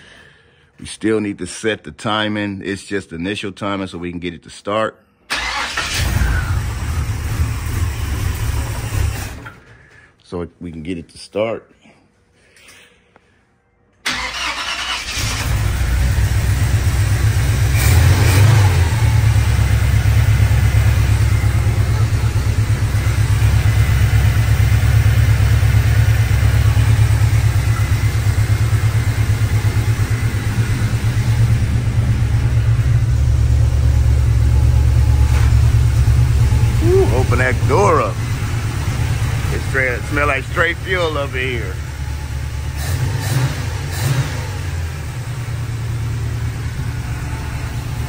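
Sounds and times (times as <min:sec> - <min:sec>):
carbureted engine idling: 0:18.9 - 0:43.0.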